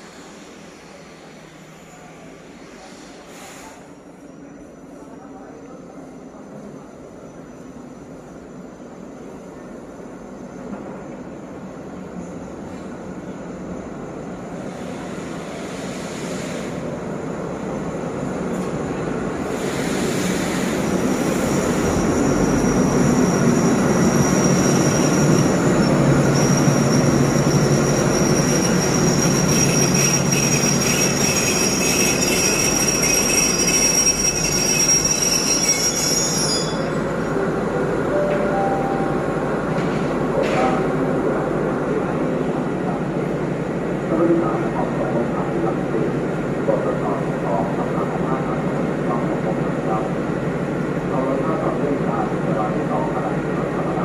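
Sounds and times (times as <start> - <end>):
train brake squeal: 0.0 - 8.8, 9.8 - 16.9, 19.4 - 37.5
diesel locomotive engine: 0.0 - 54.0.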